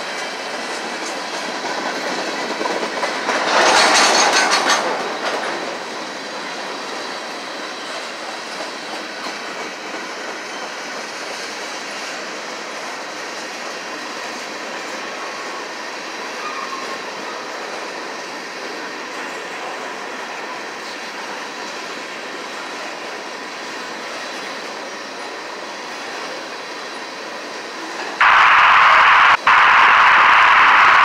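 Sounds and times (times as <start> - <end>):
steel wheels rolling on rail: 0.0 - 28.2
thin high wheel squeal: 16.3 - 17.1.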